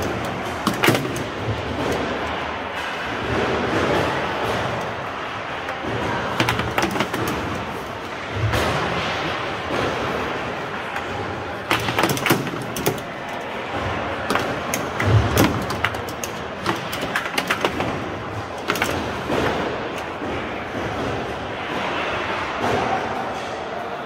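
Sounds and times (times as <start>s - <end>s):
foosball clacks and knocks: 0.0s - 22.9s
murmur of hall ambience: 0.0s - 24.0s.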